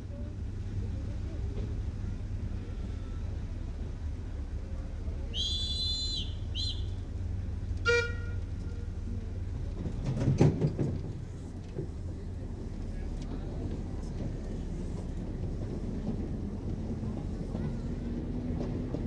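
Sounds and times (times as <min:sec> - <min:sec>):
steam locomotive whistle: 0:05.4 - 0:07.0, 0:07.8 - 0:08.9.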